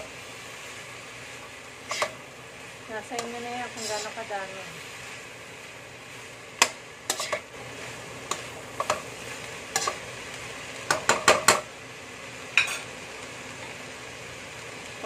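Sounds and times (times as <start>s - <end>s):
vegetables sizzling in a wok: 0.0s - 15.0s
utensil scraping and clacking on pan: 1.9s - 2.2s, 3.1s - 4.2s, 6.6s - 7.5s, 8.2s - 10.0s, 10.9s - 11.6s, 12.6s - 12.9s.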